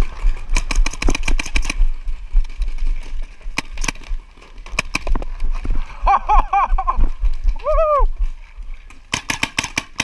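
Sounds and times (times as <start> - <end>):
paintball markers firing: 0.5 - 1.8, 3.5 - 5.3, 9.1 - 10.0.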